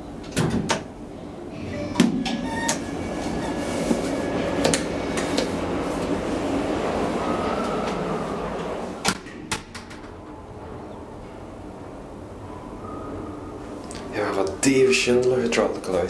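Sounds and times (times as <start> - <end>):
elevator whooshing hum: 0.0 - 14.3
elevator car clunks: 1.6 - 11.7.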